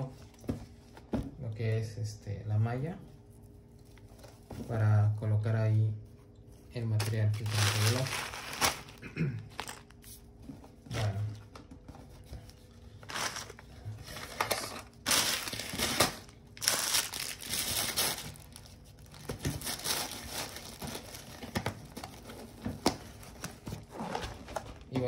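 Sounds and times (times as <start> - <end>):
packaging crinkling: 7.0 - 10.2, 13.0 - 22.6.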